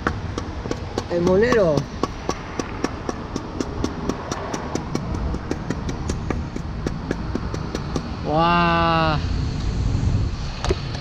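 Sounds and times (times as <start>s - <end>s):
hatchet chipping wooden log: 0.0s - 8.3s
low traffic rumble: 0.0s - 11.0s.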